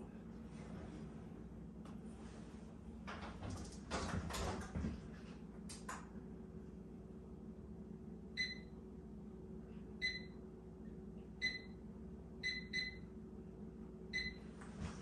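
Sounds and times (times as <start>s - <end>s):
steady low hum: 0.0s - 15.0s
microwave keypad beeps: 8.4s - 8.7s, 10.0s - 10.4s, 11.4s - 11.8s, 12.4s - 13.1s, 14.1s - 14.4s.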